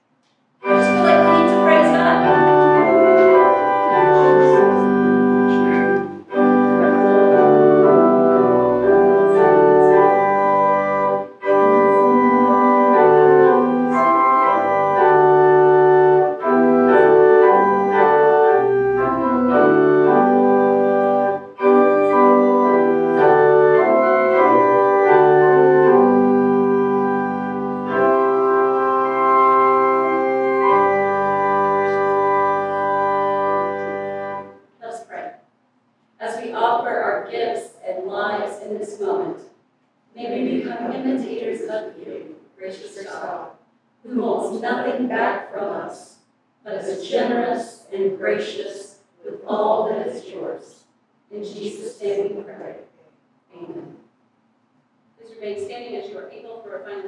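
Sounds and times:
church organ playing a hymn: 0.6s - 35.0s, 46.8s - 48.6s.

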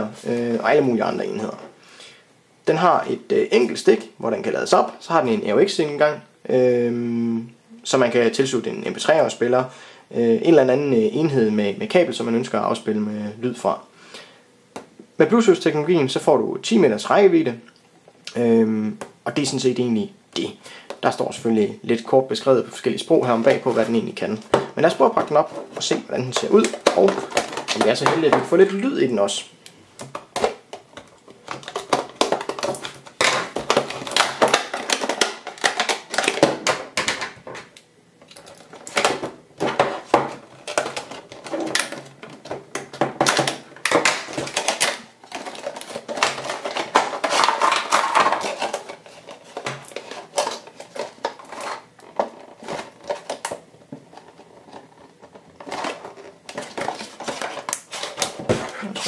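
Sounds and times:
plastic packaging crinkling: 23.2s - 28.9s, 30.0s - 59.0s
scissors cutting plastic: 30.0s - 37.2s, 38.2s - 59.0s.

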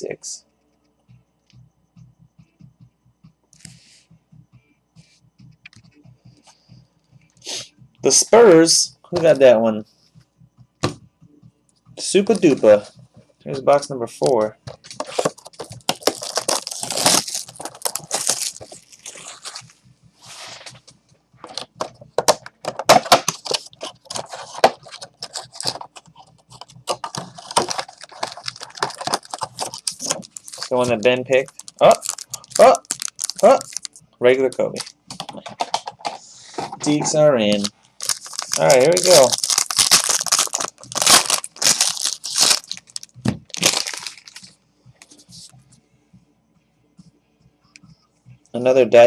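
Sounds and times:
packaging crinkling and rustling: 14.8s - 19.7s, 22.8s - 34.0s, 34.6s - 36.0s, 36.8s - 44.5s.

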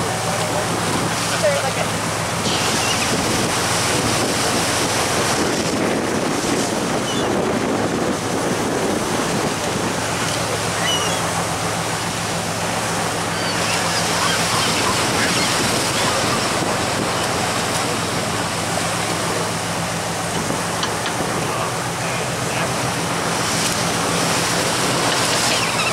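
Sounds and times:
boat engine humming: 0.0s - 25.9s
churning wake water: 0.0s - 25.9s.

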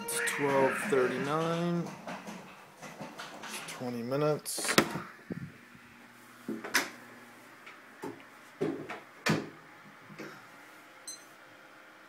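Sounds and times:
door knocks and clunks: 4.6s - 5.0s.

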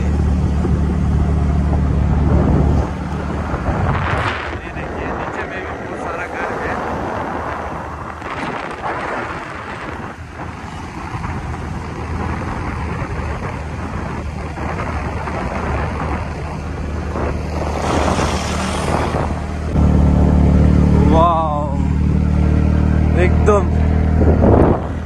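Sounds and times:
vehicle engine and tyres on wet road: 0.0s - 25.0s
wind rushing over microphone: 0.0s - 25.0s.

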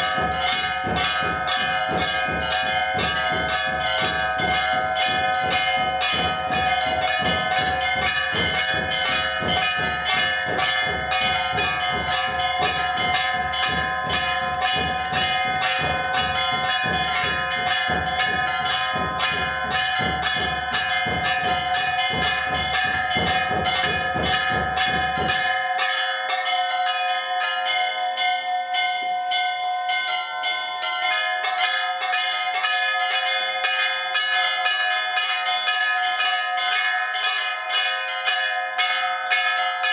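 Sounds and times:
low thudding beat: 0.0s - 25.6s
temple bells ringing rapidly: 0.0s - 39.9s.

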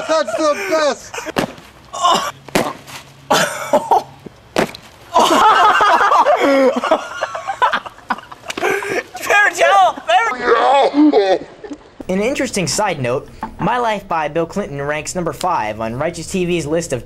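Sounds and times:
young man yelling and laughing: 0.0s - 1.4s, 5.1s - 11.7s
sharp cracks and smacks: 1.3s - 3.1s, 4.2s - 5.0s.

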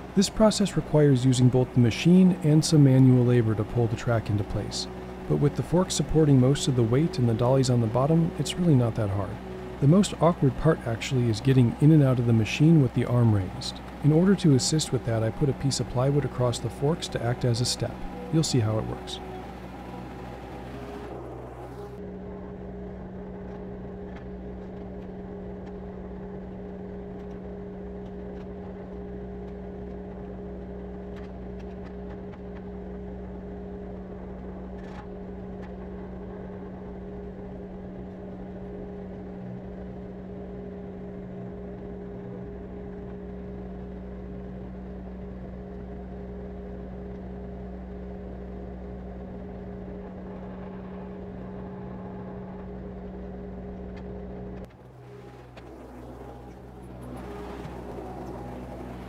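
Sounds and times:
diesel engine idling: 0.0s - 22.0s, 47.7s - 59.0s.

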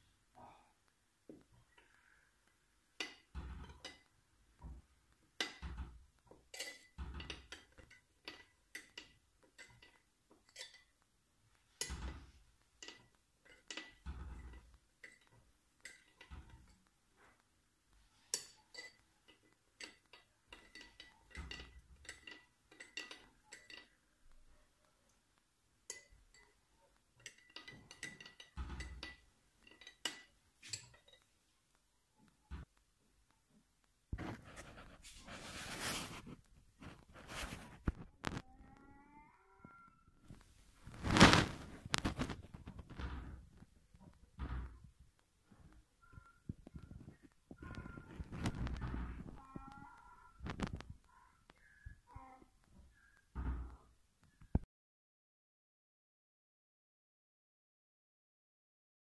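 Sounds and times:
spoon stirring liquid: 3.0s - 4.2s, 5.2s - 17.5s, 18.2s - 24.0s, 25.8s - 32.4s.

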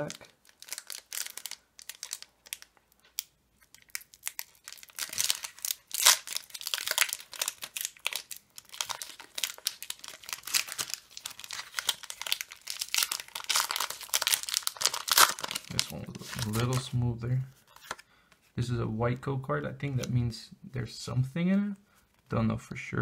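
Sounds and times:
foil wrapper crinkling: 0.0s - 16.9s.

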